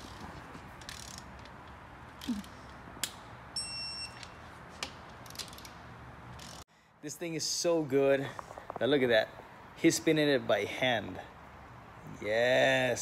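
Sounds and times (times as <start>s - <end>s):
high beep: 3.6s - 4.2s.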